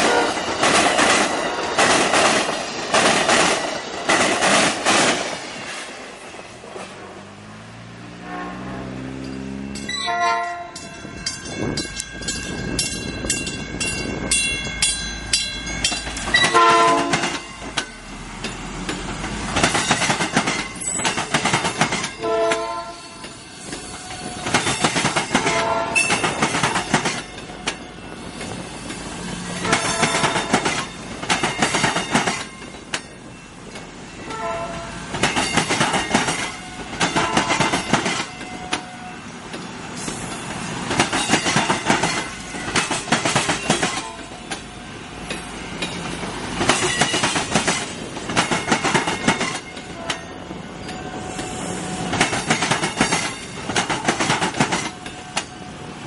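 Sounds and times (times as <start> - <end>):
train horn blasts: 0.0 - 0.5, 8.1 - 10.9, 16.4 - 17.4, 22.2 - 23.2, 25.4 - 26.2, 29.6 - 30.5, 34.2 - 35.1, 36.6 - 37.8, 38.5 - 39.3, 43.9 - 44.4, 49.9 - 50.4
train wheels clattering: 0.0 - 7.0, 9.2 - 55.6
crossing bells ringing: 8.8 - 39.5, 41.2 - 48.0, 48.6 - 53.8.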